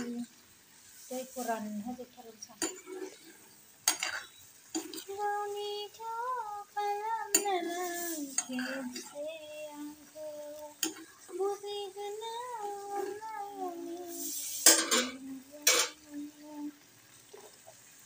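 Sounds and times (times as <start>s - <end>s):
spatula scraping and knocking pan: 2.6s - 5.1s
high voice singing: 4.9s - 16.8s.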